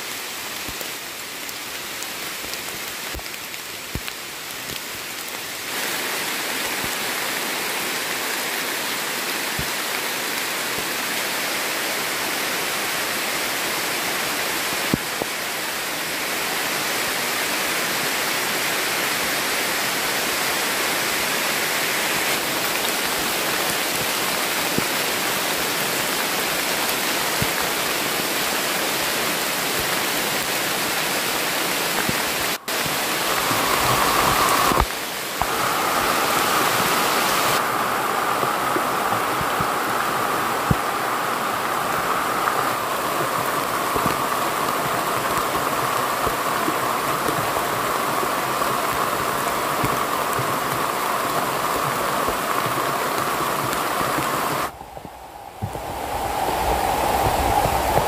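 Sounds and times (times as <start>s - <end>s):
heavy rain on foliage: 0.0s - 58.0s
sharp water drips: 29.7s - 58.0s.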